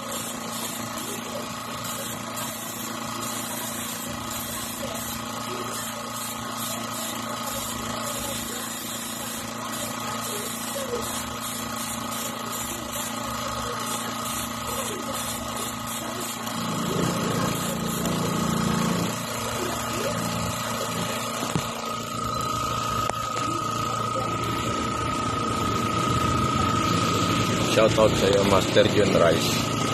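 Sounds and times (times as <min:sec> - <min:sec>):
airbrush spraying hiss: 0:00.0 - 0:16.6
air compressor humming: 0:00.0 - 0:29.9.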